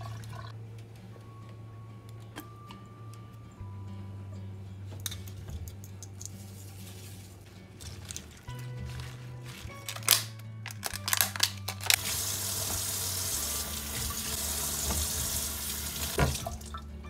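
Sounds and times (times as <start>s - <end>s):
tap running into metal sink: 13.9s - 16.6s.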